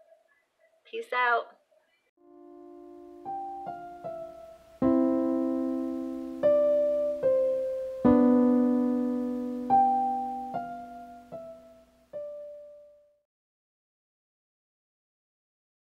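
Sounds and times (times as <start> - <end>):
slow piano piece: 2.2 - 13.2.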